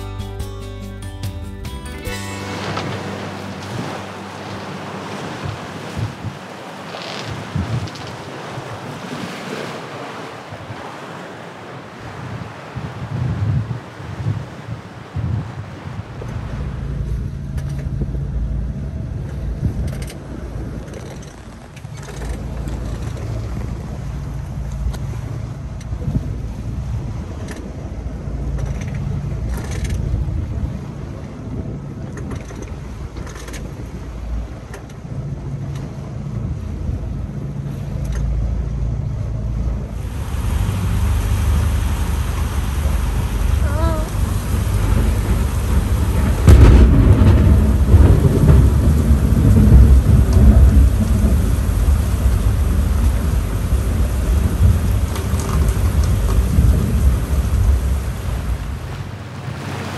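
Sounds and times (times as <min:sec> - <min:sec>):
wind: 0:00.0 - 0:59.9
rain: 0:02.5 - 0:17.0, 0:39.9 - 0:59.9
thunderclap rumbling: 0:40.0 - 0:59.1.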